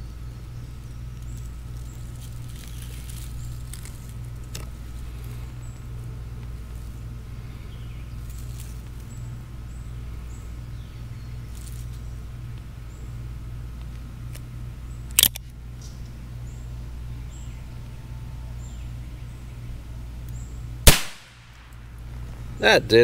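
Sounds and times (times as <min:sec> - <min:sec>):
low steady hum: 0:00.0 - 0:23.0
revolver shot: 0:20.9 - 0:21.7.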